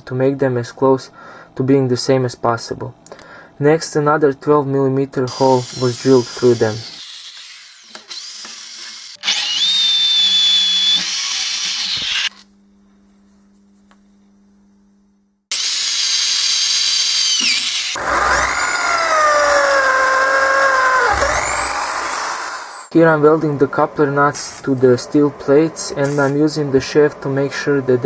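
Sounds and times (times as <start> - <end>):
electric drill drilling steel: 5.3 - 12.3, 15.5 - 22.9
faint low hum: 12.3 - 15.4.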